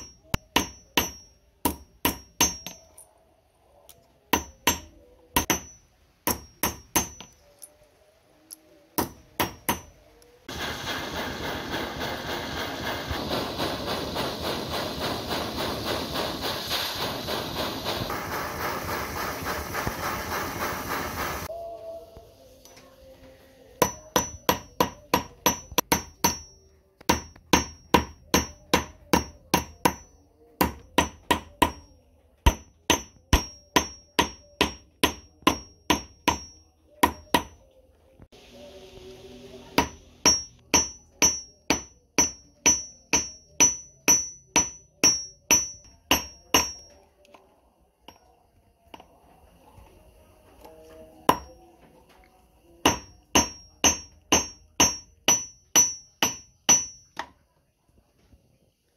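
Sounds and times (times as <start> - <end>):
hammer ringing on anvil: 0.0 - 3.1, 4.4 - 7.4, 23.8 - 31.9, 32.5 - 37.6, 39.8 - 47.0, 51.3 - 51.6, 52.8 - 57.2.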